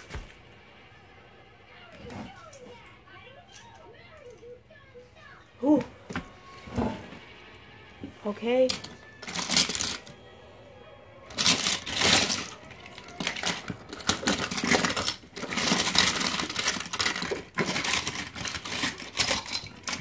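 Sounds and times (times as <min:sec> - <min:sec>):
small toys clattering and rustling: 0:01.9 - 0:04.5, 0:08.1 - 0:10.2, 0:11.3 - 0:20.0.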